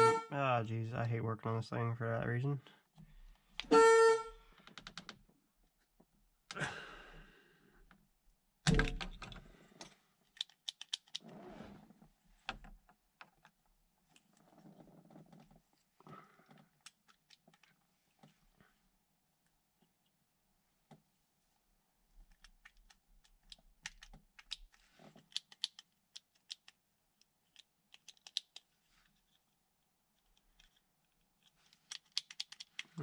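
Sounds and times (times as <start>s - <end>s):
car horn blast: 0.0s - 0.3s, 3.7s - 4.3s.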